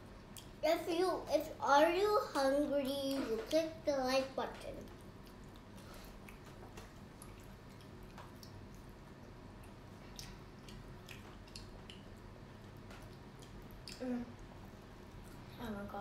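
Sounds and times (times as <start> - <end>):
faint chewing: 0.1 - 0.6, 2.2 - 16.0
mouth clicks and smacks: 4.9 - 8.9, 9.6 - 12.2.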